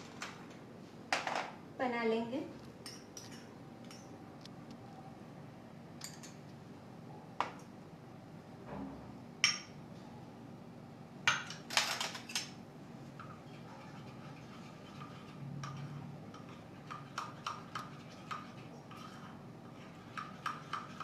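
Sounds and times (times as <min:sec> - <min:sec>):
metal spoons clinking glass bowls: 0:02.8 - 0:04.1.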